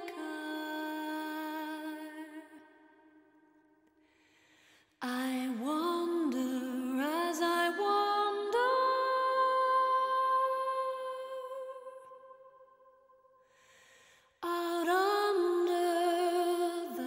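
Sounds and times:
singing voice in background music: 0.0s - 2.7s.

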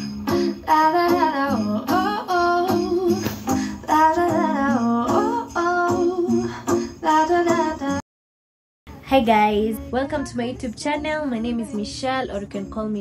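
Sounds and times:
song with melodic vocals: 0.0s - 8.0s.

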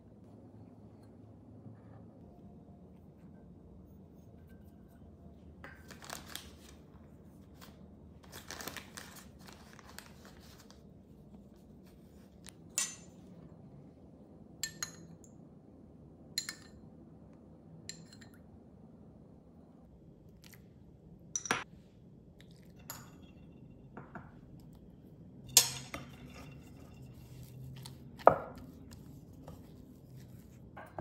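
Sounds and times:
flour sifting through sieve: 26.2s - 30.8s.

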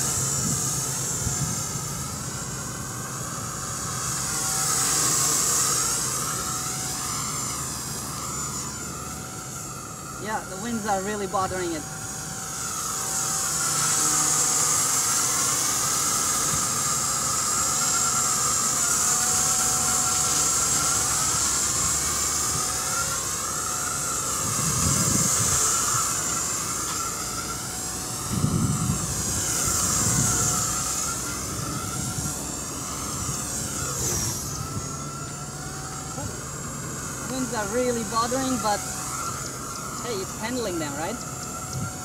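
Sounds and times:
wind rumbling on microphone: 0.0s - 2.3s, 24.4s - 26.2s, 28.1s - 35.1s, 40.0s - 42.0s
toy helicopter rotor whine: 0.0s - 42.0s.

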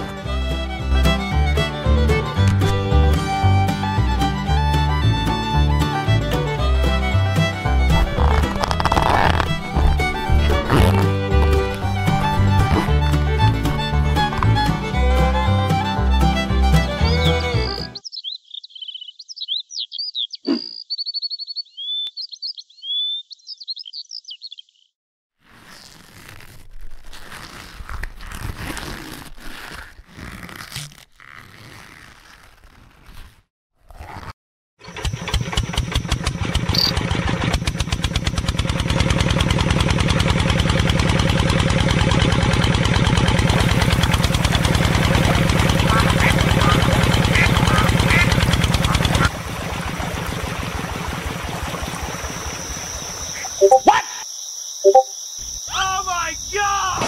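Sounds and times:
fingers scraping and rustling: 7.9s - 14.8s, 25.4s - 34.4s
miniature model engine running: 34.8s - 49.4s
water trickling: 49.3s - 53.8s
short chirps: 53.6s - 54.2s, 54.8s - 55.1s.

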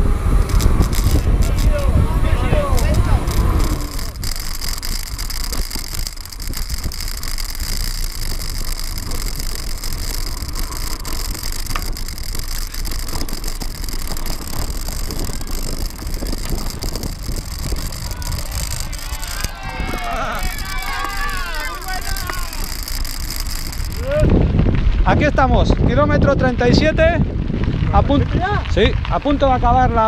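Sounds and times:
bike knocking and rattling: 0.0s - 30.0s
bike tyres rolling on gravel: 0.0s - 30.0s
wind noise on microphone: 0.0s - 30.0s.

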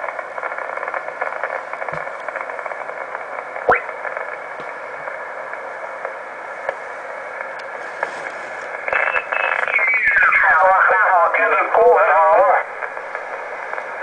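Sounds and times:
radio static hiss: 0.0s - 14.0s
garbled radio signal: 8.7s - 13.0s.

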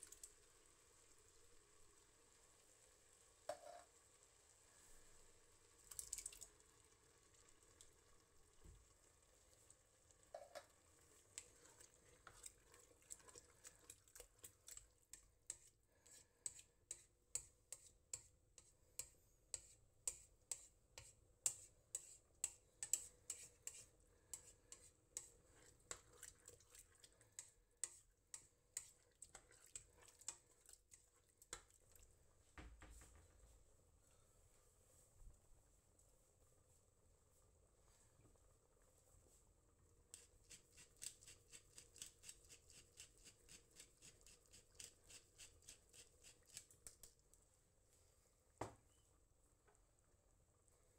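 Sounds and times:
spoon stirring salsa in a pot: 3.4s - 4.0s, 9.4s - 32.3s, 39.8s - 47.4s.

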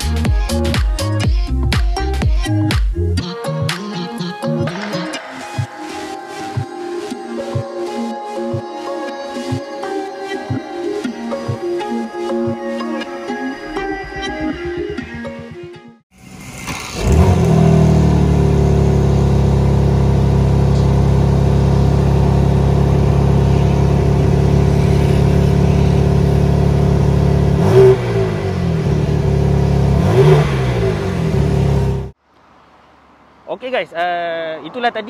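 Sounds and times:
engine revving blips: 16.2s - 32.2s
car engine starting and idling: 16.2s - 33.7s.

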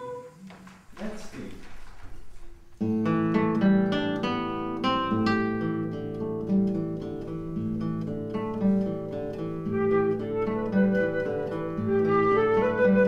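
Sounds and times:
instrumental music with plucked notes: 2.8s - 13.0s.

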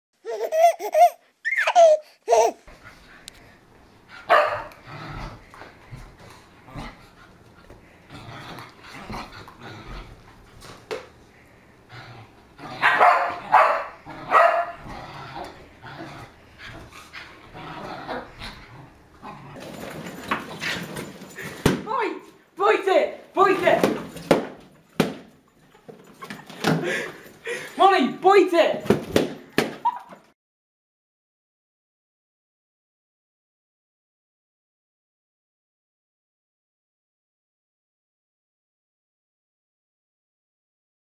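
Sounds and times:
dogs barking and growling: 4.0s - 21.6s.

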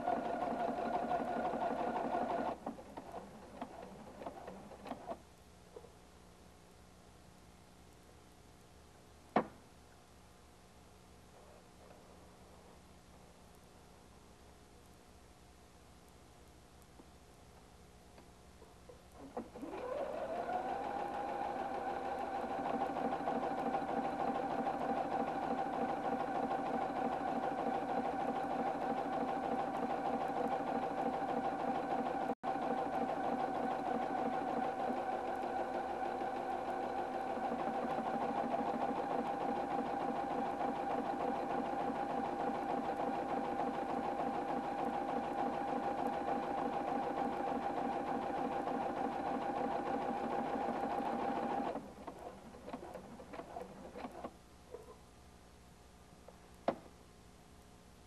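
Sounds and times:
sewing machine running: 0.0s - 4.6s, 19.6s - 54.3s.

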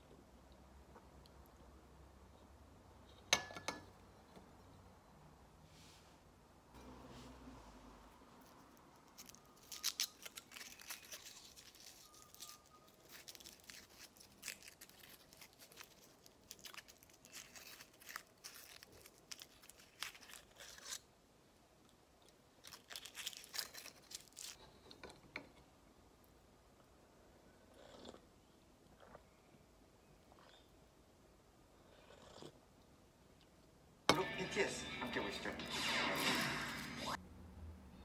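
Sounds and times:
foil wrapper crinkling: 9.0s - 21.0s, 22.6s - 24.6s.

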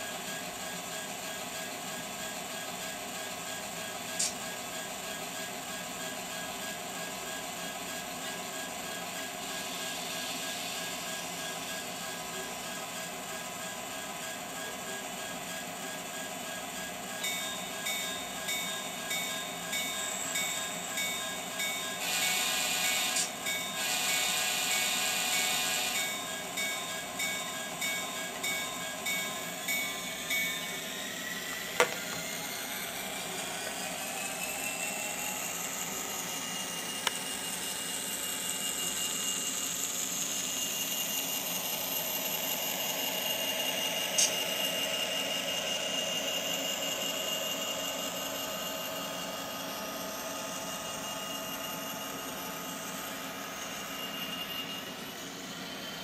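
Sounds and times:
engine whine: 16.5s - 56.0s
locomotive bell ringing: 17.0s - 33.9s.

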